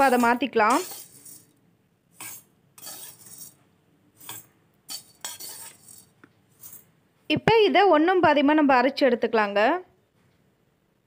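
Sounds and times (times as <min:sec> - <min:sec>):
flakes scraping into metal jar: 0:00.0 - 0:01.5, 0:02.2 - 0:03.6, 0:04.2 - 0:06.8.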